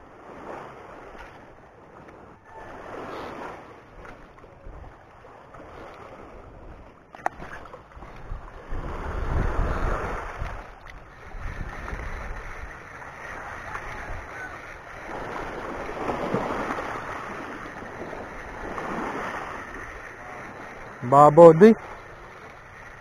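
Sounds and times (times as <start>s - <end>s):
small waves on pebbly shore: 0.0s - 23.0s
wind buffeting microphone: 5.7s - 21.0s.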